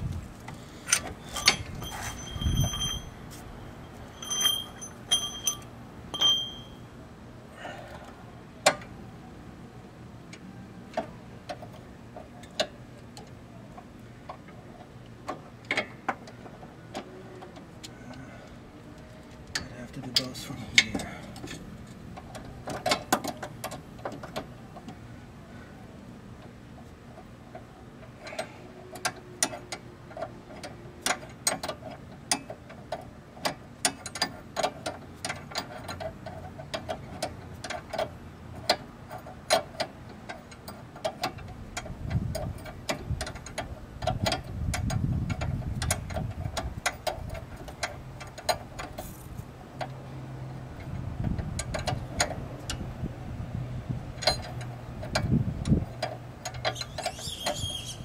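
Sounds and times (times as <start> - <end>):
low rumble: 0.0 - 0.5
hand ratchet clicking: 54.2 - 58.0.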